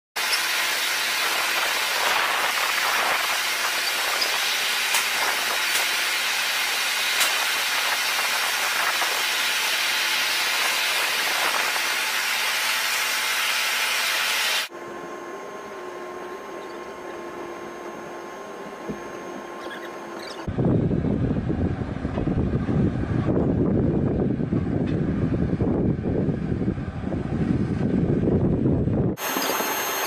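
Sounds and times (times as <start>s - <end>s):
airfield noise hissing: 0.2s - 14.7s, 29.2s - 30.0s
aircraft hold hum with whine: 0.2s - 30.0s.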